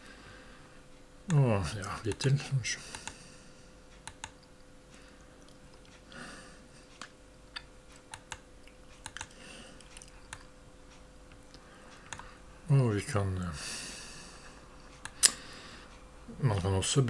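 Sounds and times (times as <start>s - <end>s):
faint steady hum: 0.0s - 17.0s
mouse and keyboard clicks: 4.0s - 4.4s, 8.0s - 8.4s, 9.0s - 10.5s.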